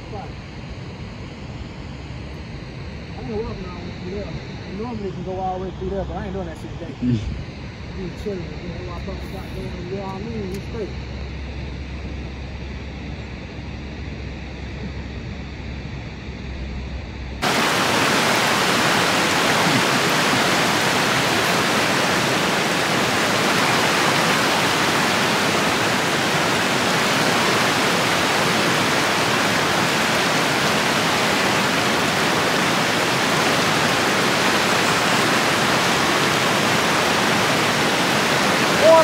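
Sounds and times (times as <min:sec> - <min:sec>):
falling water rushing: 0:17.4 - 0:39.0.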